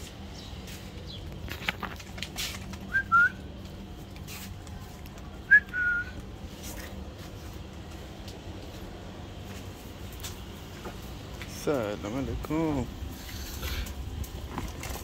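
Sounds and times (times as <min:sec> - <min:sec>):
person whistling: 0:02.9 - 0:03.4, 0:05.5 - 0:06.2.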